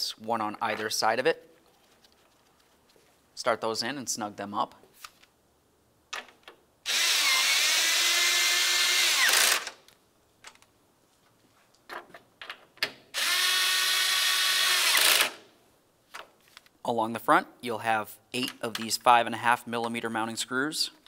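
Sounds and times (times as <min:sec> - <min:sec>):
cordless drill whining: 0:06.9 - 0:09.8, 0:13.2 - 0:15.4.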